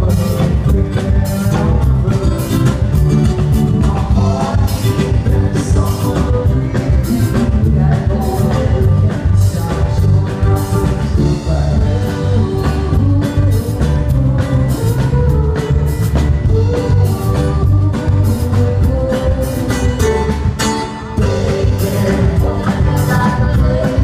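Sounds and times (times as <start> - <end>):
strummed acoustic guitar: 0.0 - 11.6, 18.3 - 24.0
drum kit: 0.0 - 24.0
man singing: 0.0 - 24.0.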